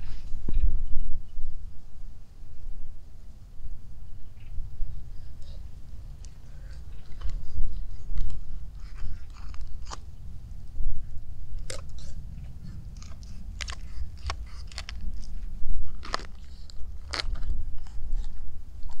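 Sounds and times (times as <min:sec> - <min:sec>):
knife cracking through chicken bone: 0:13.0 - 0:15.3, 0:16.0 - 0:18.3.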